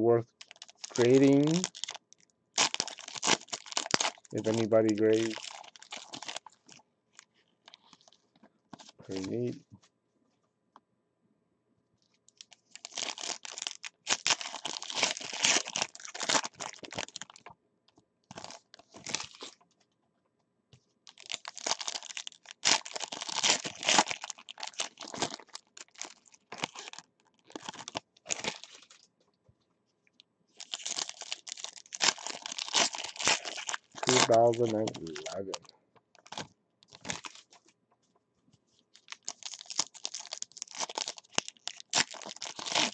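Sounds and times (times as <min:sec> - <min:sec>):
foil wrappers tearing and crinkling: 0:00.3 - 0:02.0, 0:02.6 - 0:06.8, 0:12.4 - 0:17.5, 0:18.3 - 0:19.6, 0:21.1 - 0:29.0, 0:30.6 - 0:35.6, 0:36.2 - 0:37.6, 0:39.0 - 0:42.9.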